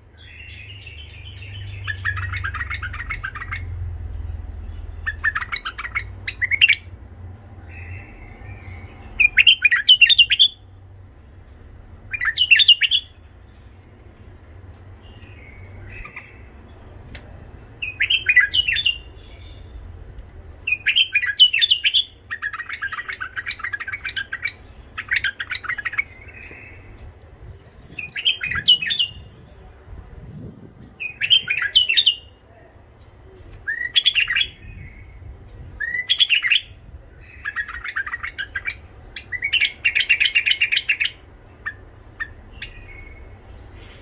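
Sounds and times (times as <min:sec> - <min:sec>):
bird singing rough song: 0:00.0 - 0:44.0.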